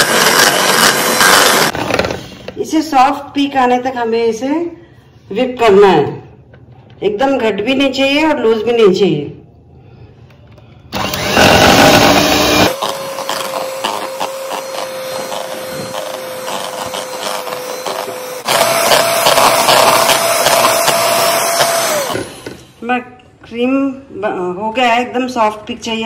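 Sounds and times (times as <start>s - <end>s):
electric hand mixer whining: 0.0s - 2.1s, 10.9s - 22.8s.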